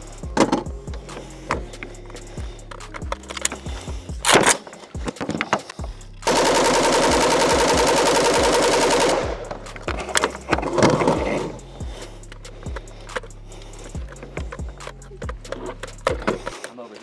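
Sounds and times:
metallic handling clatter: 2.9s - 5.8s
rifle reload clack: 4.2s - 11.1s
rifle full-auto burst: 6.3s - 9.6s.

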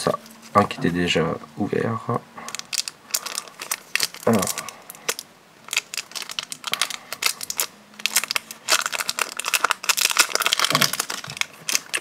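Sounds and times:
plastic film crinkling: 2.4s - 12.0s.

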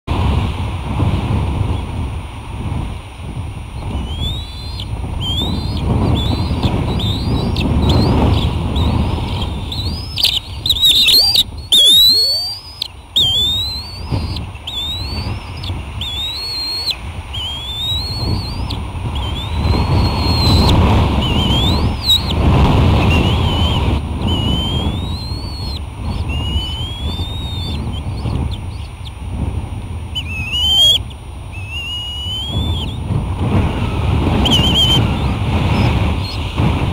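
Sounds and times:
wind on microphone: 0.1s - 36.9s
eagle chirps: 3.8s - 29.2s, 30.1s - 33.1s, 33.7s - 36.5s.

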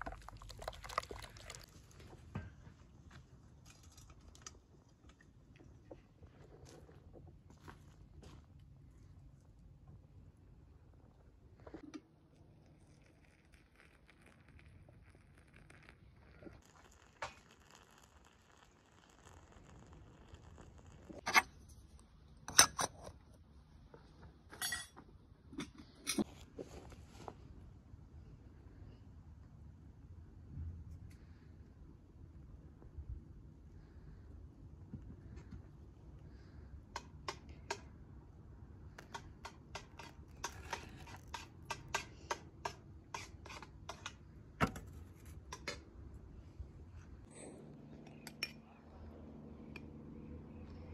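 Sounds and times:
water pouring into teapot: 0.0s - 2.1s, 12.4s - 21.2s
faint low hum: 46.0s - 50.9s.

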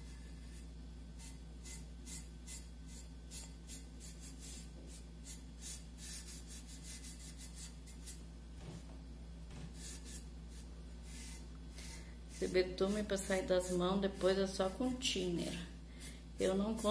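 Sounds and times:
steady low hum: 0.0s - 16.9s
quick rubbing strokes: 9.6s - 16.9s.

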